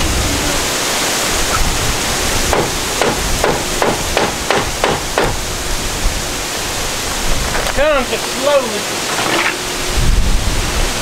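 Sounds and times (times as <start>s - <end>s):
wind noise on microphone: 0.0s - 8.2s, 9.6s - 11.0s
hammer striking wood: 2.5s - 5.4s.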